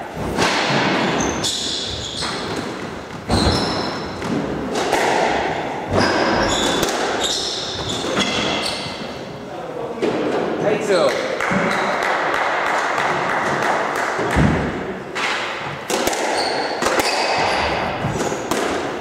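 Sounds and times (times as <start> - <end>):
shoe squeaks on wooden floor: 1.0 - 4.2, 5.9 - 9.2, 16.3 - 18.5
squash ball thuds: 2.3 - 9.2, 11.4 - 19.0.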